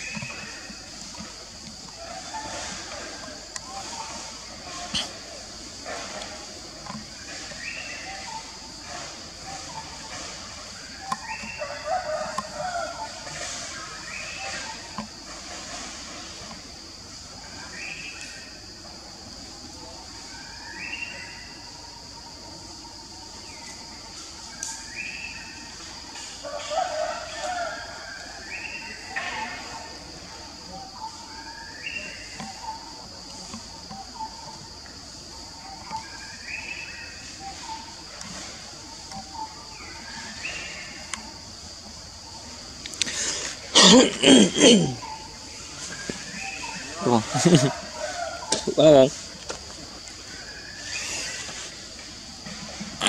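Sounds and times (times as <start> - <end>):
high insect drone: 0.0 - 53.0
loud voice-like calls: 43.1 - 45.4.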